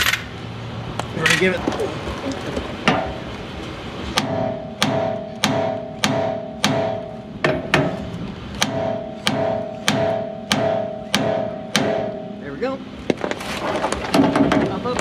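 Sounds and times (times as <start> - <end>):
hammer striking steel: 4.2 - 8.0, 8.6 - 12.8.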